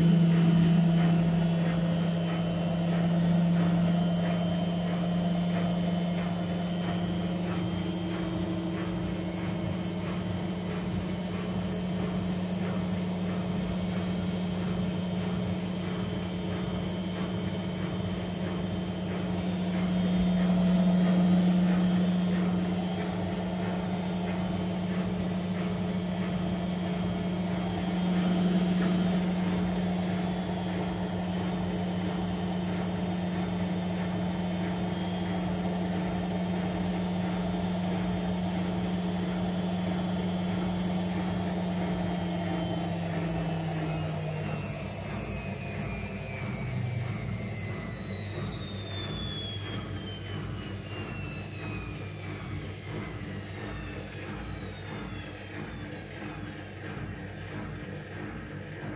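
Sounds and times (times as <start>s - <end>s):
washing machine motor whine: 0.0s - 58.9s.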